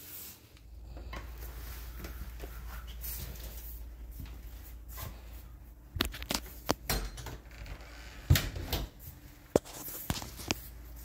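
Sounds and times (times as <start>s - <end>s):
footsteps on tile floor: 1.0s - 6.8s.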